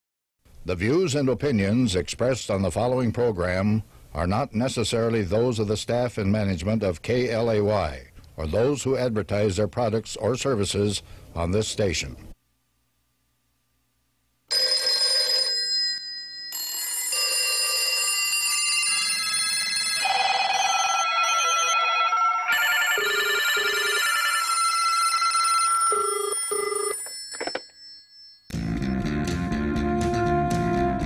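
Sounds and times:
trilling ring tones: 0:14.5 - 0:28.6
electronic telephone tones: 0:16.5 - 0:28.4.

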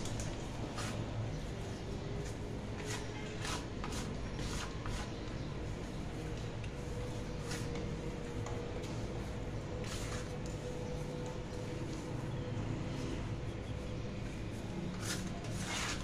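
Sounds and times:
hands kneading dough: 0:00.0 - 0:12.1
steady background noise: 0:00.0 - 0:16.0.

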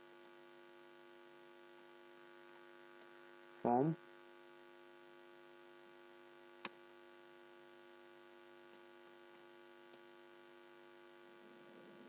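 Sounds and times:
electrical hum: 0:05.8 - 0:12.0
faint ticks: 0:08.7 - 0:10.1.

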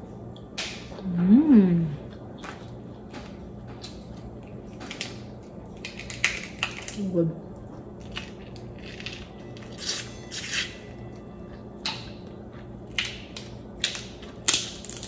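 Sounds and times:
shell crackling as peeled: 0:04.9 - 0:07.0, 0:12.9 - 0:15.0.

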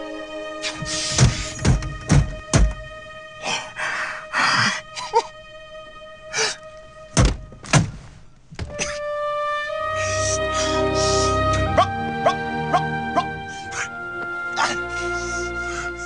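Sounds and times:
background music: 0:00.0 - 0:16.0
sudden sharp thumps: 0:01.1 - 0:03.0, 0:07.2 - 0:08.9
breathy vocal noises: 0:14.6 - 0:16.0.

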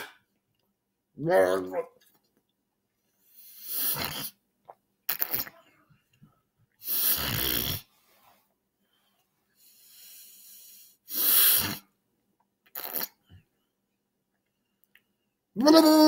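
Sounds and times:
man forcing harsh air blasts: 0:03.4 - 0:04.3, 0:06.8 - 0:07.8, 0:09.8 - 0:11.9
drawn-in breath: 0:06.8 - 0:11.8.

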